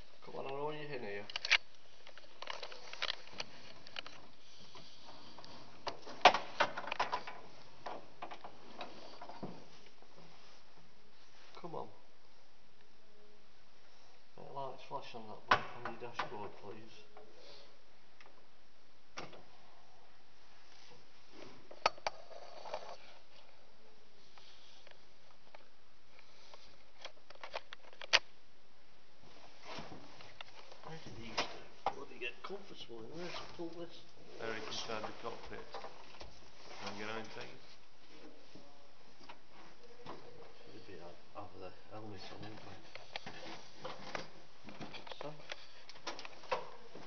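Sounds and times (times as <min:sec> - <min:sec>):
steady low hiss: 0:00.0 - 0:47.0
steady hiss: 0:19.4 - 0:27.1.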